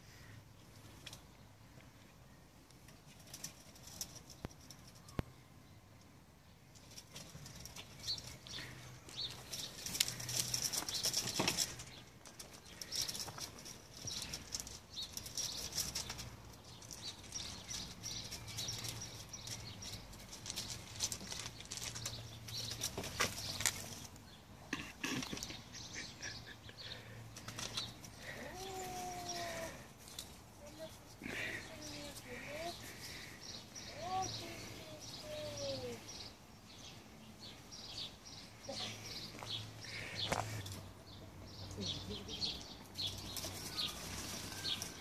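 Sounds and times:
crunching on gravel: 7.7 - 24.2.

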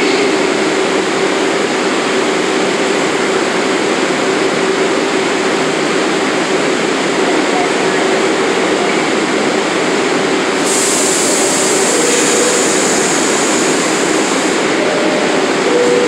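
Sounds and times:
subway train running hum: 0.0 - 16.0
high hiss: 10.6 - 15.6.

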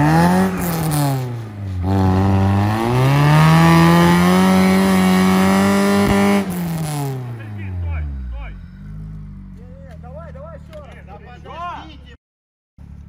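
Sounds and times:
car engine revving hard: 0.0 - 9.4.

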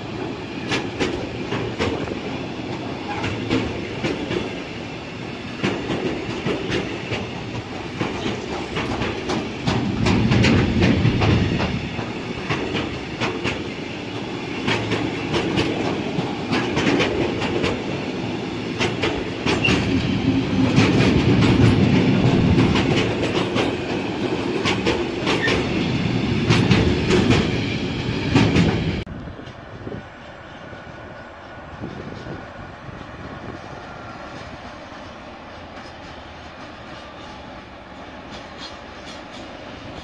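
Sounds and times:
freight train wheels clacking: 0.0 - 40.0.

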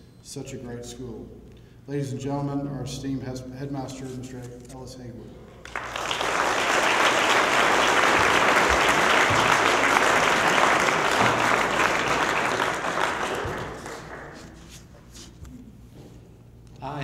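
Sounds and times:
audience applauding: 5.6 - 14.7.

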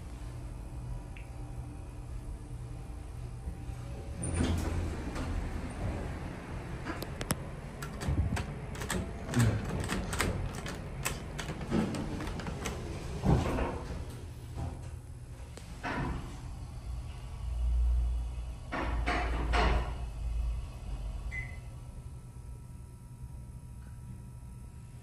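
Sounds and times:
elevator button clicking: 7.0 - 13.0.

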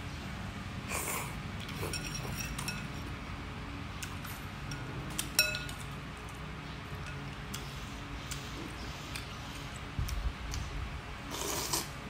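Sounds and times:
spoon clinking glass bowl: 1.8 - 3.1, 4.7 - 5.9.

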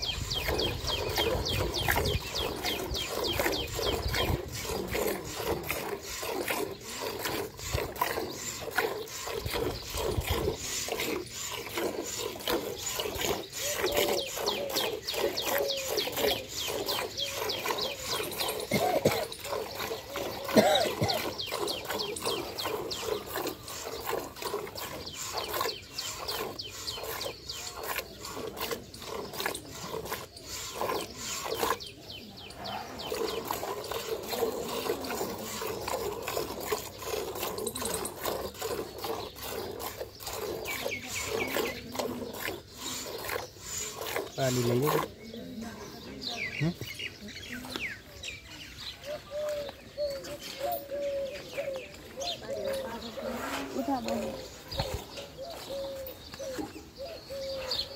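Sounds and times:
milk squirting into metal bucket: 0.0 - 32.3, 32.9 - 45.2.

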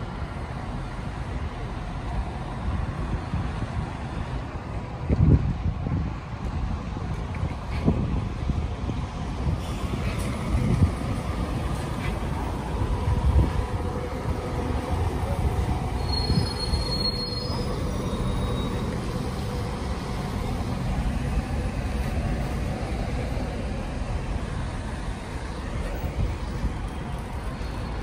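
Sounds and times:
bus engine and tyres rumbling: 0.0 - 28.0
brief high squeal: 16.0 - 19.0.

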